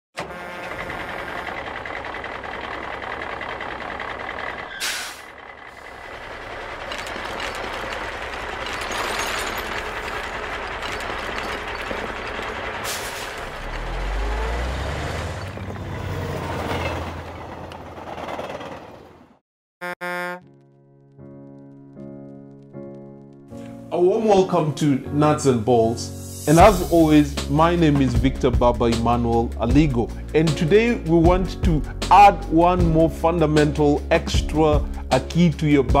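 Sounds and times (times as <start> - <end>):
truck engine running: 0.2 - 19.4
air brake hiss: 4.8 - 5.3, 12.8 - 13.4
load clattering out: 6.6 - 13.2.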